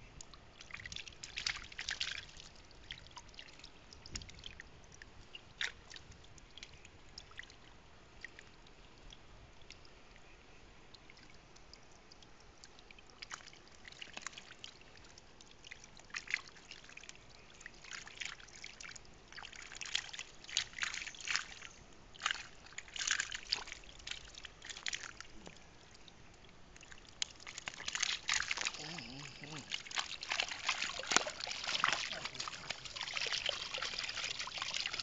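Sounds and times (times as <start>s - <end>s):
fish splashing in water: 26.7s - 35.0s.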